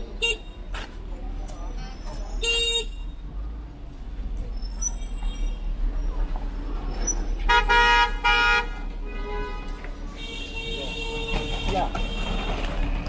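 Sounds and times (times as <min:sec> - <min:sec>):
street traffic noise: 0:00.0 - 0:13.0
vehicle horn honking: 0:07.5 - 0:13.0.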